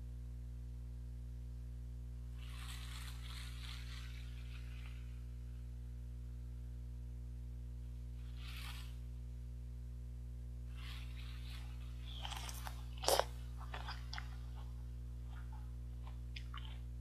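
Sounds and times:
low electrical hum: 0:00.0 - 0:17.0
crunching bites into melon: 0:11.3 - 0:16.9.

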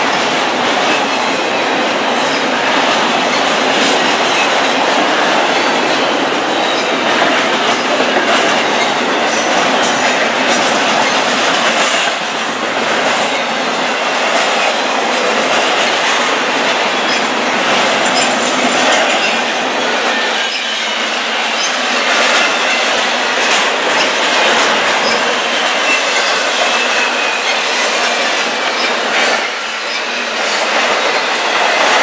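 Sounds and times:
freight train cars rolling past: 0:00.0 - 0:32.0
wheels clicking over rail joints: 0:00.0 - 0:32.0.

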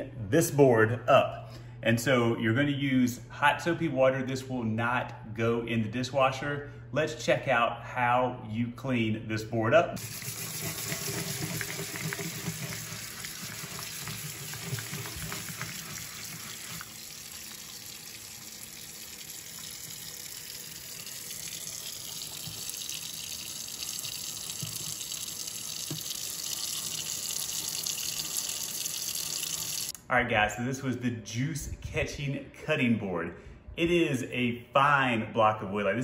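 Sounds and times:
faucet water running onto board: 0:10.0 - 0:30.0.

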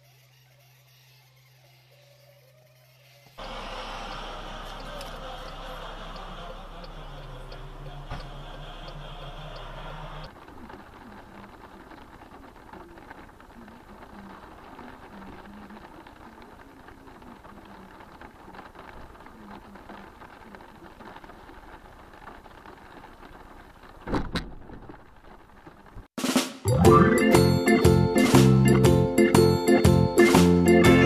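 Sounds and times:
car interior background noise: 0:03.4 - 0:26.2.

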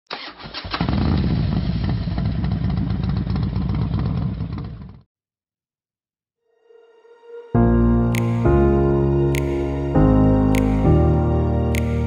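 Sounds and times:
motorcycle engine running: 0:00.9 - 0:05.1.

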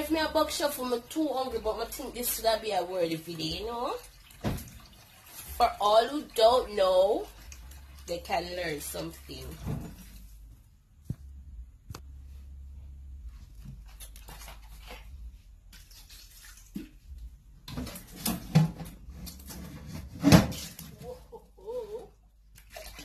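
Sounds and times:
steady low hum: 0:10.2 - 0:14.0.

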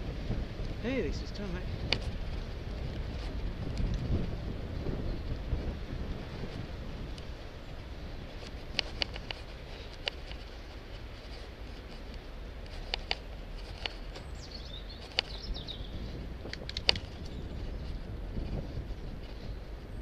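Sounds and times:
wind and tyres rumbling: 0:00.0 - 0:20.0
bicycle clicks and rattles: 0:01.7 - 0:20.0
bird singing: 0:14.2 - 0:16.1.

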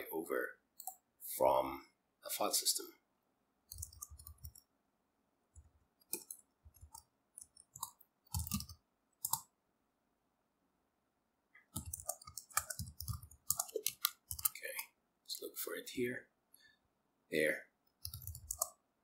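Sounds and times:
computer keyboard typing: 0:03.7 - 0:04.7, 0:05.6 - 0:09.5, 0:11.7 - 0:14.9, 0:17.9 - 0:18.8.

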